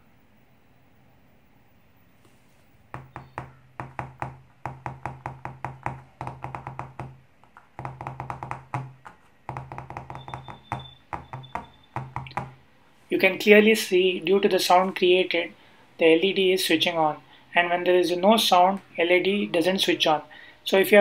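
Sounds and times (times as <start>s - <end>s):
fingertips tapping on a cutting mat: 3.0s - 12.6s.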